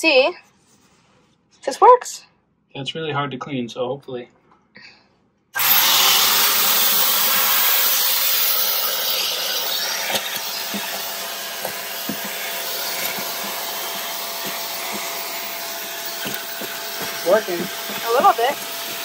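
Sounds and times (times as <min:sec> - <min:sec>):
vacuum cleaner running: 0:05.6 - 0:19.0.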